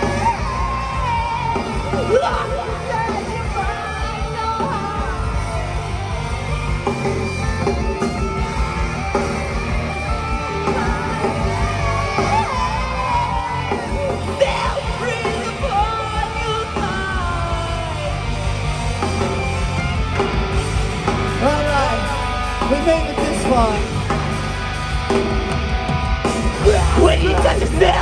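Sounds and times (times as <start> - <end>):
sung and yelled vocals: 0.0 - 19.8, 26.6 - 28.0
loud rock band playing live: 0.0 - 28.0.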